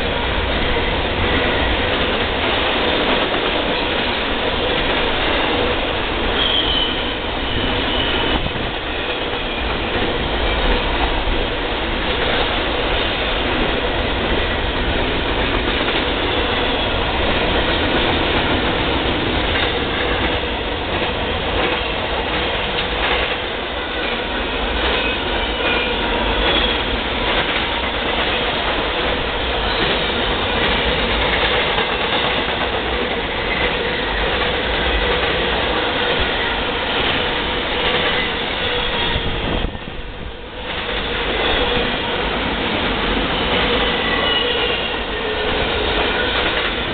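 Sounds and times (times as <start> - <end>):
train wheels clattering on rail: 0.0 - 46.9
wheel squeal: 6.2 - 9.6, 43.3 - 46.6.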